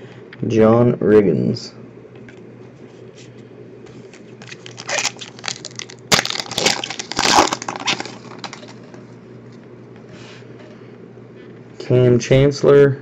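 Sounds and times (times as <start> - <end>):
plastic wrapper crinkling: 4.4 - 9.0.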